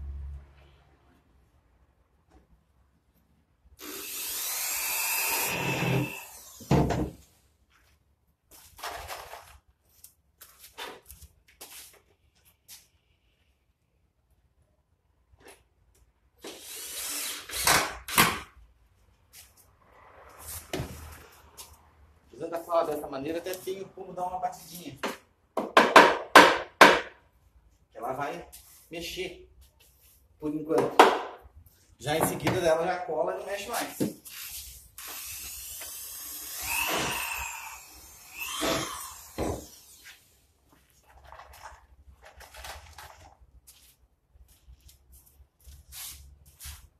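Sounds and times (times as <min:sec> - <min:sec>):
cordless drill driving a screw: 0:03.8 - 0:06.8, 0:35.0 - 0:40.4.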